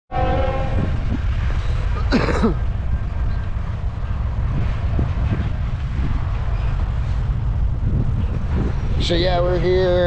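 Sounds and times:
steady low rumble: 0:00.1 - 0:10.0
person clearing throat: 0:02.0 - 0:02.6.

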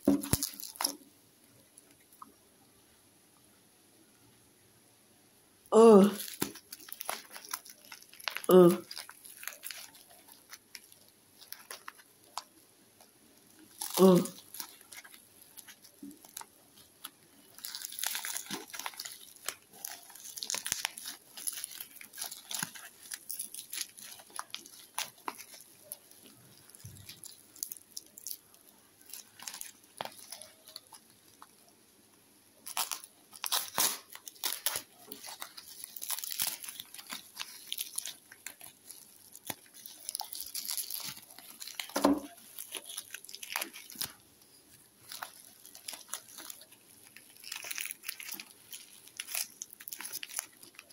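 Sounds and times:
tape tearing: 0:00.0 - 0:01.0, 0:17.5 - 0:26.0, 0:32.7 - 0:44.2
plastic wrap crinkling: 0:00.0 - 0:02.2, 0:06.0 - 0:31.9, 0:32.6 - 0:50.9.

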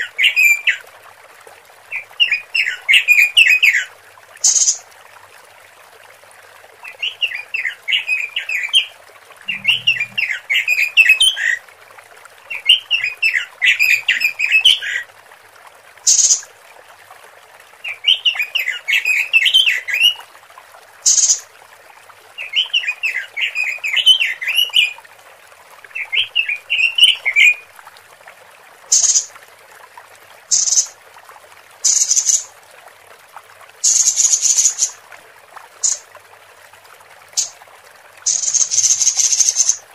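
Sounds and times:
bird fast chattering calls: 0:09.5 - 0:10.4, 0:28.9 - 0:29.3, 0:30.5 - 0:30.9, 0:31.9 - 0:32.4, 0:33.8 - 0:35.0, 0:38.3 - 0:39.8
bird high sharp notes: 0:09.5 - 0:10.4.

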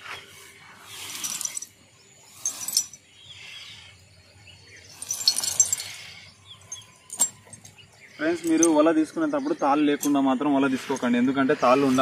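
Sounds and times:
faint bird chirps: 0:00.0 - 0:12.0
net sinkers clinking: 0:02.4 - 0:03.1, 0:04.9 - 0:11.2.

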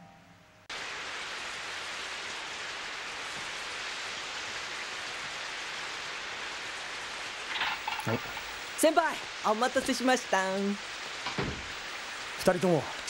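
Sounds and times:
steady rain on a street: 0:00.7 - 0:13.0.

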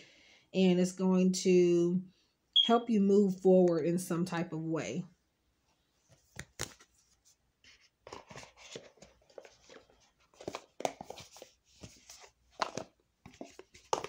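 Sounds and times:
cards rustling and tapping: 0:06.1 - 0:14.0.

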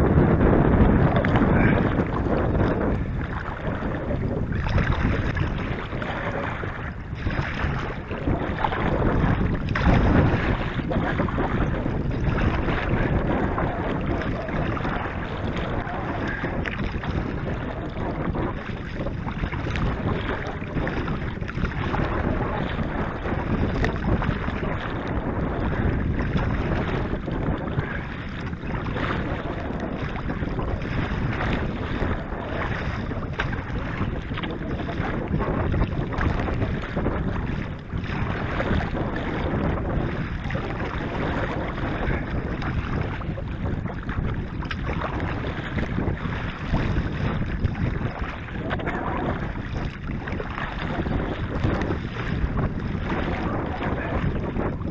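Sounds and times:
water splashing against kayak: 0:00.0 - 0:54.9
wind on microphone: 0:00.0 - 0:54.9.

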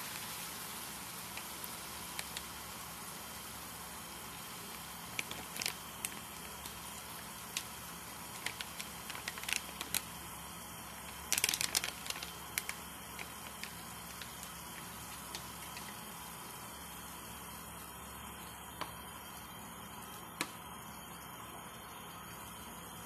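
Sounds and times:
food sizzling in a pan: 0:00.0 - 0:23.0
oil popping: 0:04.6 - 0:10.2, 0:10.9 - 0:16.9.

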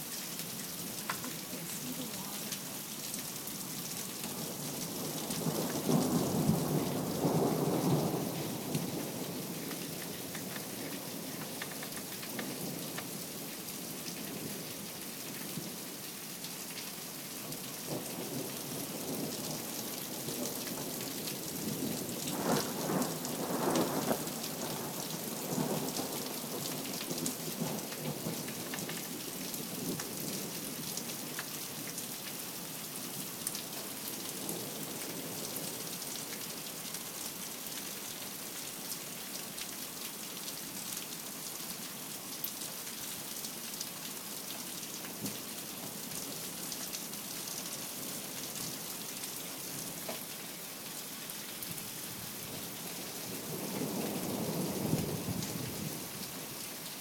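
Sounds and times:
rain falling on ground: 0:00.0 - 0:57.0.

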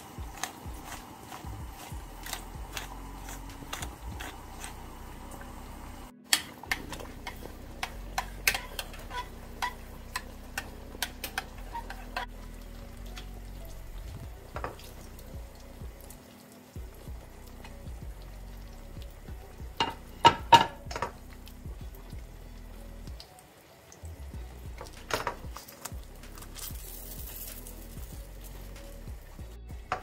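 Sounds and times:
spoon stirring in saucepan: 0:06.3 - 0:13.4
sauce simmering with pops: 0:06.3 - 0:29.2.

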